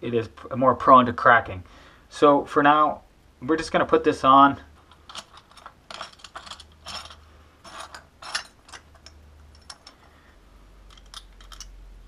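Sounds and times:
light metallic clicks and scrapes: 4.8 - 11.8.

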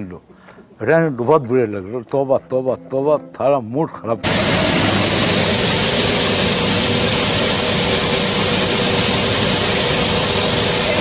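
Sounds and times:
hand dryer rushing air: 4.2 - 11.0.

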